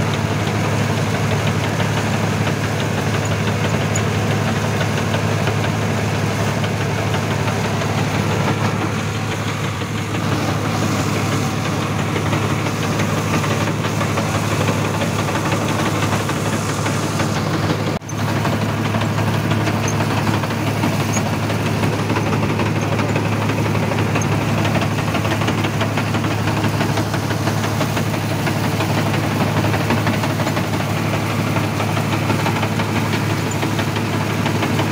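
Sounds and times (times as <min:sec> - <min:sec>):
tractor diesel engine under load: 0:00.0 - 0:34.9
straw reaper rattling: 0:08.8 - 0:34.2.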